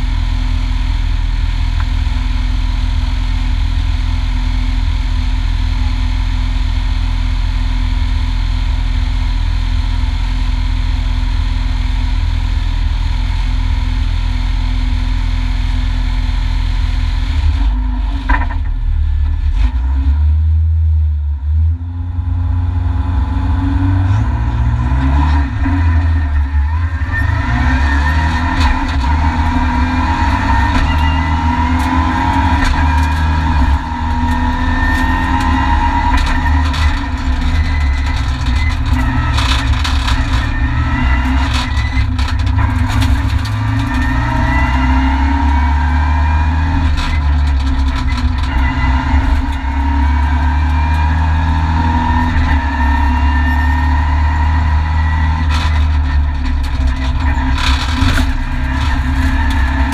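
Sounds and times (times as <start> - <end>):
rally car engine revving: 0.0 - 59.9.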